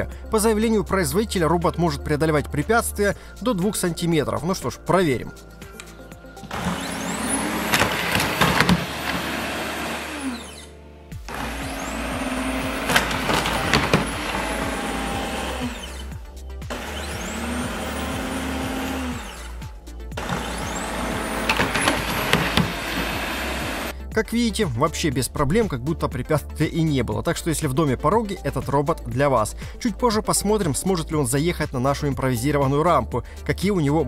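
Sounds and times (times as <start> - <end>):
background music: 0.0 - 34.0
robot vacuum fan whine: 6.4 - 23.9
clicks and knocks: 6.5 - 9.4.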